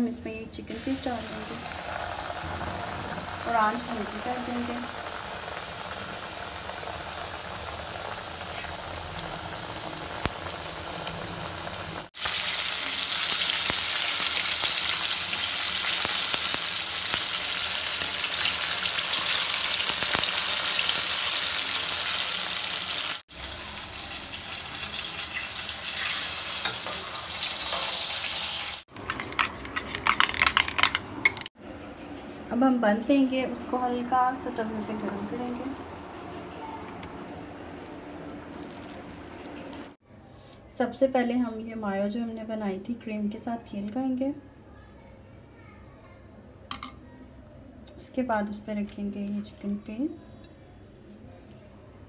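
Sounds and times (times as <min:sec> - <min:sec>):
chicken deep-frying in oil: 0:00.7 - 0:29.4, 0:33.8 - 0:40.0.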